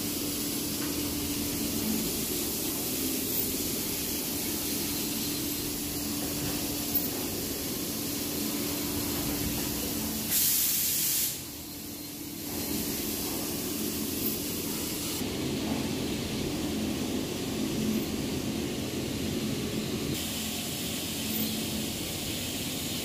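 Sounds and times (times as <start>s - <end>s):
machine low tone: 0.8s - 10.1s.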